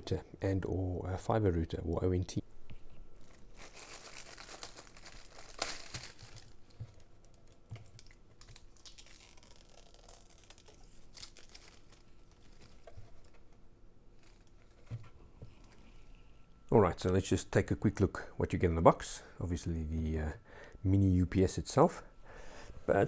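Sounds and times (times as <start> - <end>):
plastic bag crinkling: 3.2 - 13.4, 14.2 - 14.9.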